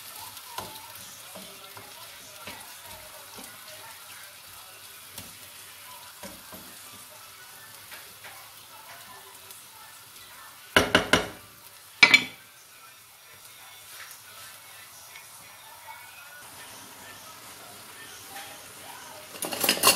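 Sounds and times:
vegetables sizzling in pan: 0:00.0 - 0:19.9
spoon knocking against pan: 0:10.8 - 0:11.4, 0:12.0 - 0:12.4.

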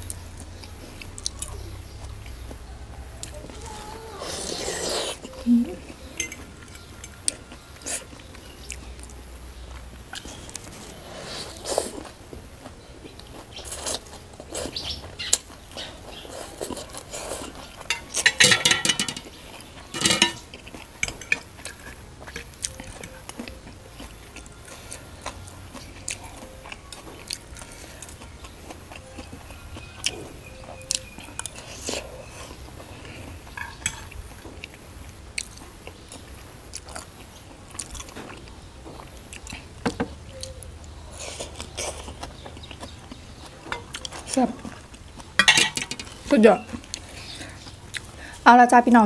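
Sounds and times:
chewing noodles: 0:00.1 - 0:18.4, 0:19.1 - 0:48.4
fork and spoon clinking on plate: 0:06.2 - 0:07.2, 0:17.9 - 0:19.3, 0:19.9 - 0:21.5, 0:33.6 - 0:34.2, 0:45.4 - 0:46.2.

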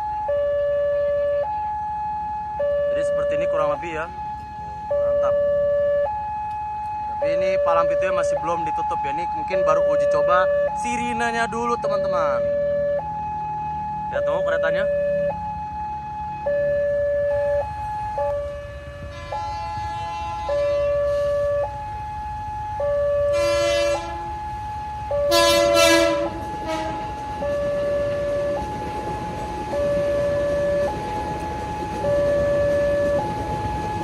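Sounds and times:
level crossing siren: 0:00.0 - 0:34.0
electric train passing: 0:17.2 - 0:34.0
train horn: 0:19.0 - 0:21.5, 0:23.3 - 0:24.4, 0:25.3 - 0:27.2.

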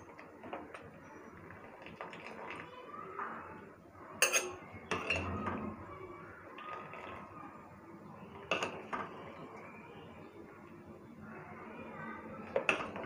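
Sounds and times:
spoon clinking on metal strainer: 0:04.2 - 0:04.6.

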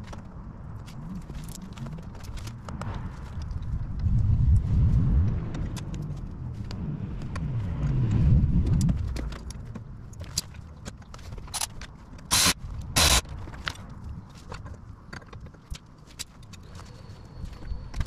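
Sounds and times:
low wavering rumble: 0:01.0 - 0:10.2
loud burst of noise: 0:12.3 - 0:13.2.

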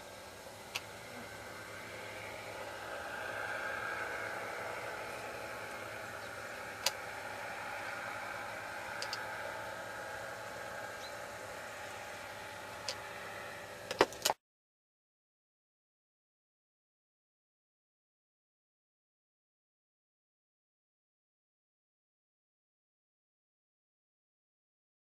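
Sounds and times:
paramotor engine hum: 0:00.0 - 0:14.4
sharp clicks: 0:06.8 - 0:07.0, 0:09.0 - 0:09.3.

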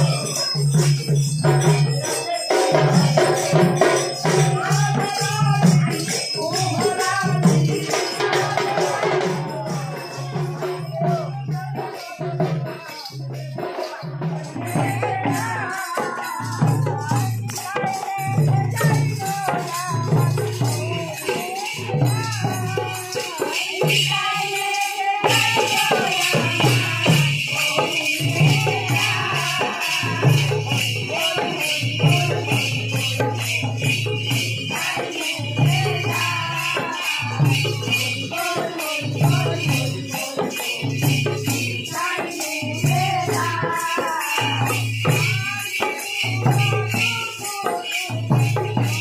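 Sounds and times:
drum beating steady rhythm: 0:00.0 - 0:49.0
hand cymbals jingling: 0:00.0 - 0:49.0
women chanting together: 0:02.7 - 0:10.8, 0:17.7 - 0:33.4, 0:34.7 - 0:46.2.

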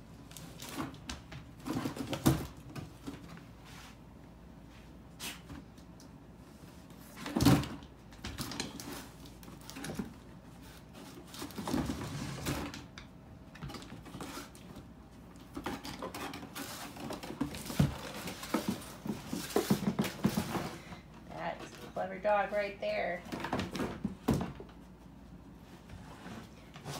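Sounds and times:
cardboard box scraping on wooden floor: 0:11.8 - 0:12.7.

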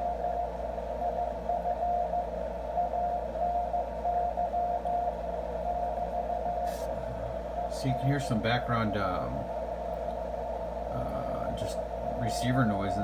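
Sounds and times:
morse code tone: 0:00.0 - 0:08.2
receiver hiss: 0:00.0 - 0:13.0.

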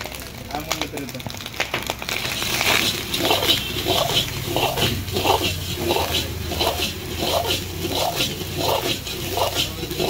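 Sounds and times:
ladle scraping a wok: 0:02.2 - 0:10.0.

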